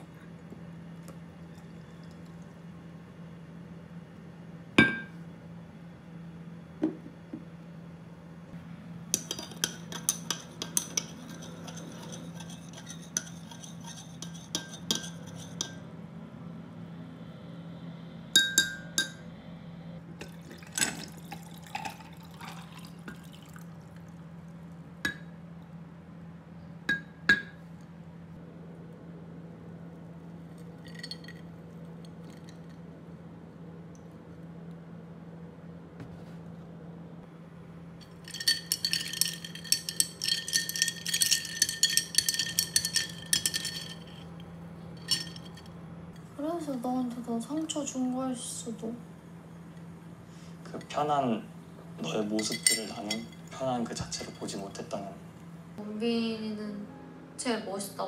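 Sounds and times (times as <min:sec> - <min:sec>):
liquid pouring into jug: 0:20.2 - 0:24.2
glass straw clinking in glass jug: 0:30.8 - 0:31.4, 0:38.0 - 0:44.4, 0:45.0 - 0:45.7, 0:52.4 - 0:53.5.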